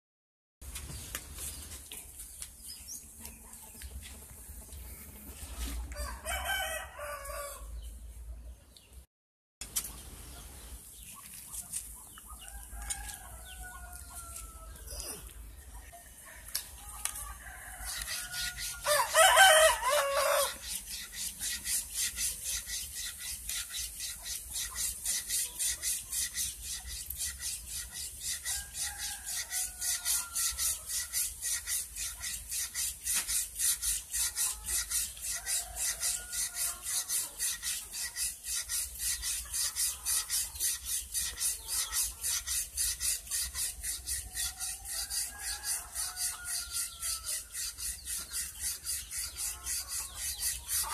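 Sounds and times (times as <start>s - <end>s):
rooster crowing: 5.9s - 7.7s, 16.3s - 20.6s, 44.9s - 47.4s
blade rubbing on whetstone: 17.8s - 50.9s.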